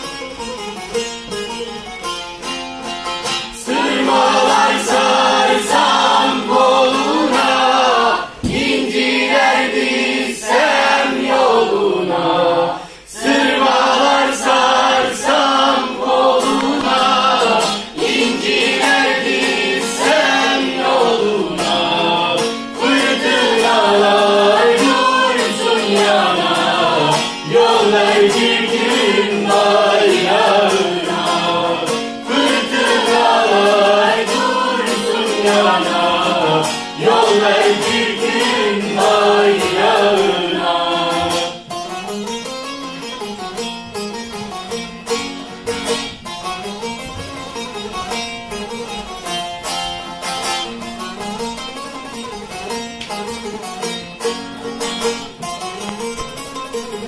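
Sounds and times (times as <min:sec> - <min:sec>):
long-necked lute playing: 0:00.0 - 0:57.0
men singing together: 0:03.6 - 0:41.6.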